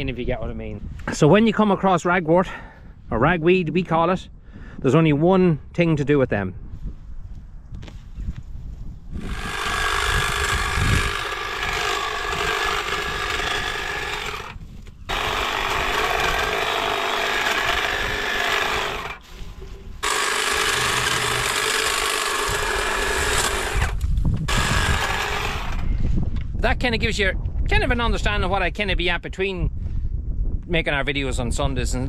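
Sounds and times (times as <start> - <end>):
hedge trimmer buzzing: 9.2 - 19.4, 20.0 - 26.0.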